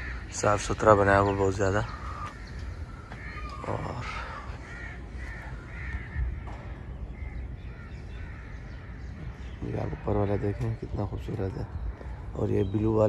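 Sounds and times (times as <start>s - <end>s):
crows cawing: 0.0s - 13.0s.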